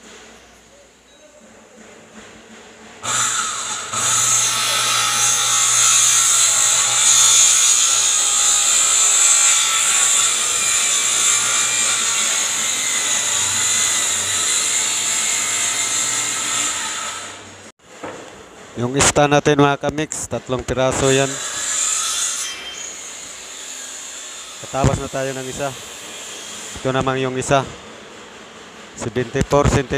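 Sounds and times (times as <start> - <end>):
circular saw cutting plywood: 3.0 - 17.7, 20.5 - 27.7.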